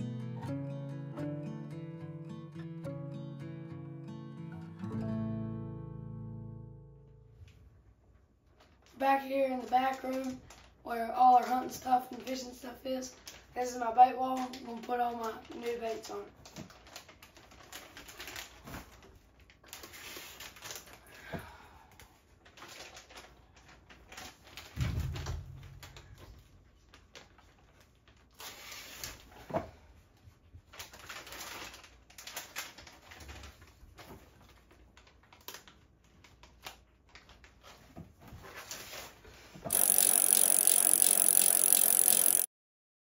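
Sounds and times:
plastic packages crinkling: 0:09.6 - 0:10.8, 0:14.3 - 0:21.1, 0:22.3 - 0:25.5, 0:30.6 - 0:37.7.

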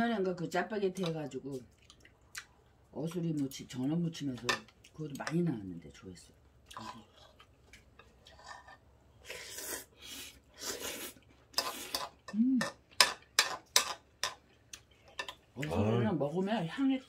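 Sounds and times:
slurping noodles: 0:09.2 - 0:12.0.

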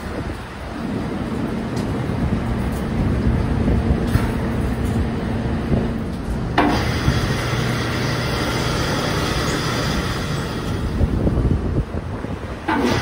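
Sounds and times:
sawmill machinery humming: 0:00.0 - 0:13.0
high whirring hiss: 0:06.6 - 0:13.0.

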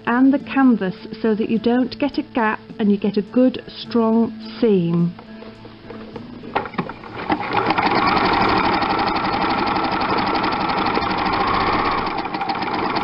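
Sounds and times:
sewing machine stitching: 0:06.6 - 0:13.0.

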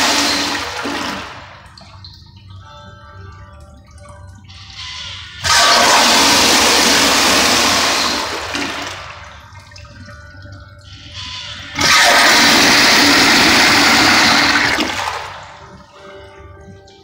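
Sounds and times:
toilet flushing: 0:00.0 - 0:02.5, 0:04.4 - 0:15.9
soft water hiss: 0:04.4 - 0:08.2.

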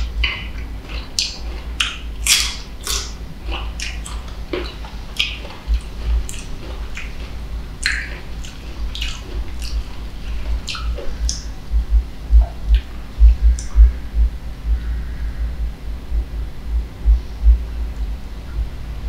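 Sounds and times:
mango crunching while chewed: 0:00.0 - 0:11.6
low steady rumble: 0:00.0 - 0:19.0.

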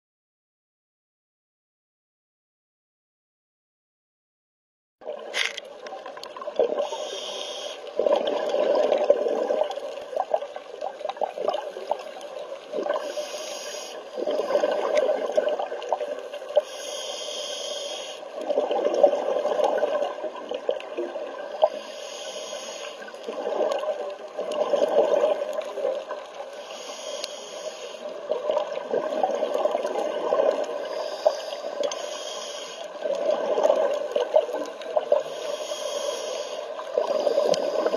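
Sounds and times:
regulator inhale hiss: 0:06.8 - 0:08.0, 0:12.9 - 0:14.6, 0:16.5 - 0:18.4, 0:21.6 - 0:23.3, 0:26.5 - 0:28.3, 0:30.7 - 0:33.0, 0:35.1 - 0:37.9
exhaled bubbles rushing: 0:07.9 - 0:13.1, 0:14.2 - 0:16.3, 0:18.4 - 0:21.7, 0:23.2 - 0:26.3, 0:28.3 - 0:30.8, 0:33.0 - 0:35.2.

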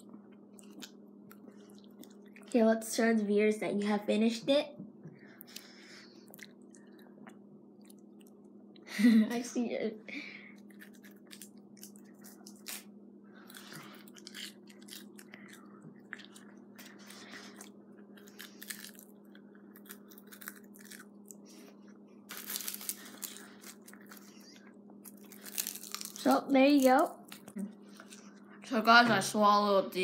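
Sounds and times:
steady low hum: 0:00.0 - 0:30.0
wet mouth chewing sounds: 0:00.5 - 0:02.5, 0:05.4 - 0:08.5, 0:10.6 - 0:21.6
breaths: 0:05.1 - 0:06.3, 0:10.1 - 0:10.6, 0:16.9 - 0:18.8.

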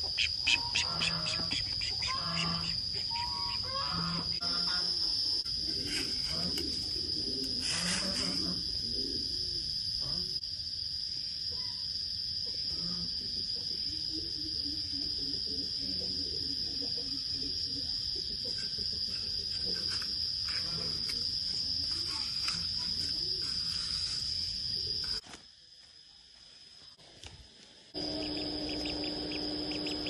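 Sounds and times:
insects droning: 0:00.0 - 0:30.0
soil scraping and tapping: 0:18.6 - 0:24.3.

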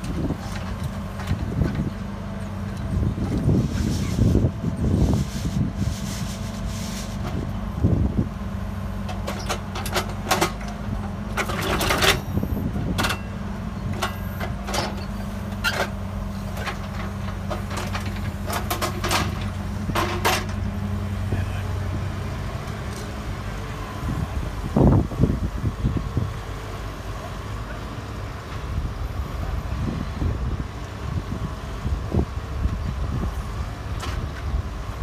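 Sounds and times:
diesel excavator engine running: 0:00.0 - 0:35.0.

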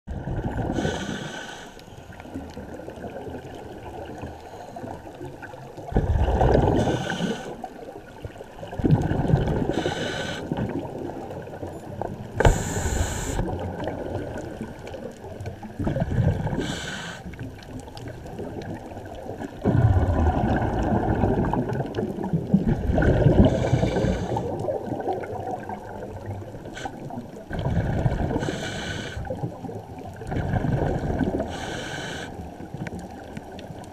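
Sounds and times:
regulator exhale bubbling: 0:00.2 - 0:01.8, 0:05.9 - 0:07.7, 0:08.7 - 0:11.2, 0:12.4 - 0:14.4, 0:15.8 - 0:17.6, 0:19.6 - 0:32.6
muffled regulator hiss: 0:00.8 - 0:01.8, 0:06.8 - 0:07.6, 0:09.7 - 0:10.5, 0:12.4 - 0:13.5, 0:16.6 - 0:17.3, 0:28.4 - 0:29.3, 0:31.5 - 0:32.4.

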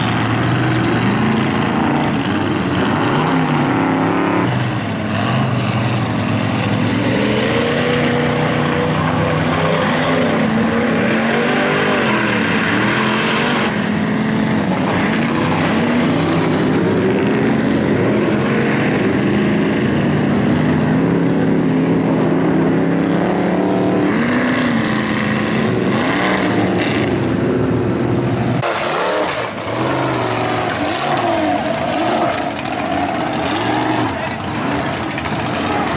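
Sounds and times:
truck engine revving hard: 0:00.0 - 0:35.9
truck engine running: 0:00.0 - 0:35.9.

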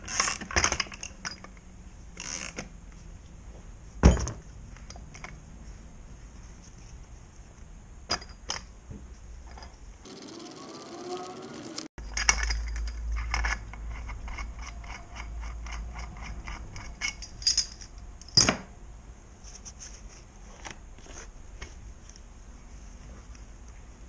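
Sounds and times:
metallic clinks and knocks: 0:12.0 - 0:18.6.

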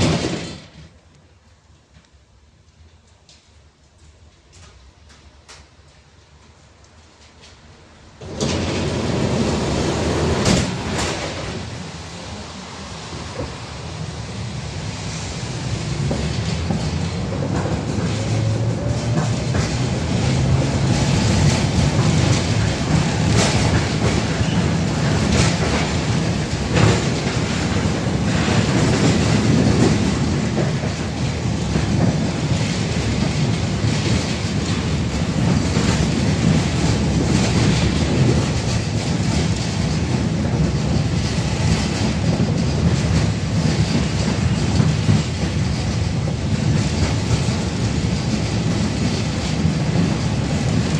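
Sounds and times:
wheels clacking over rails: 0:00.0 - 0:01.0, 0:08.2 - 0:11.8, 0:15.5 - 0:50.9
tram wheels rumbling: 0:00.0 - 0:50.9.

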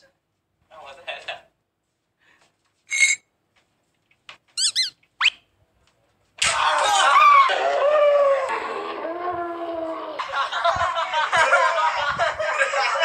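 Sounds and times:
high-pitched squeaks: 0:02.9 - 0:03.2, 0:04.6 - 0:05.4.

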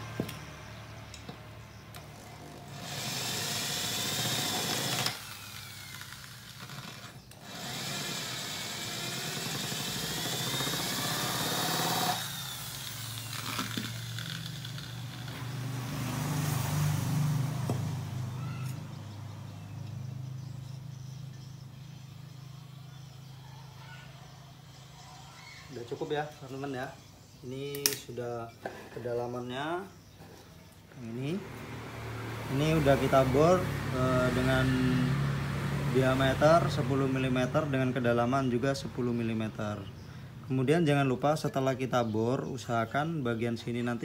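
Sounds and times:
electric drill whining: 0:02.0 - 0:15.7.

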